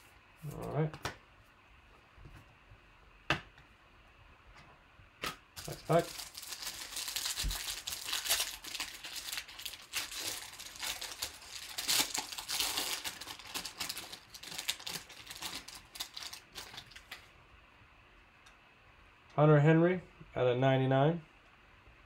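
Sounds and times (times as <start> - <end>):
foil wrapper tearing and crinkling: 5.6 - 17.2.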